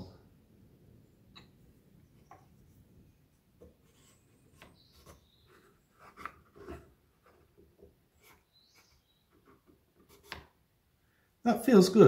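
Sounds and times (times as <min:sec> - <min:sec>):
wood rubbing on wood: 0:02.2 - 0:10.5.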